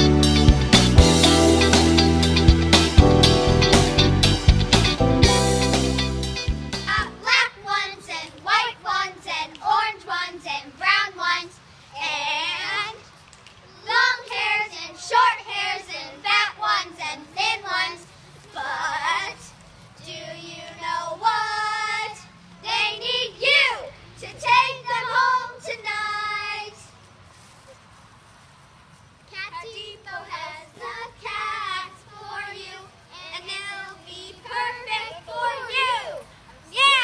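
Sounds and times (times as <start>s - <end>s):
band-backed song: 0.0s - 7.4s
girls singing unaccompanied: 6.9s - 27.0s, 29.4s - 37.0s.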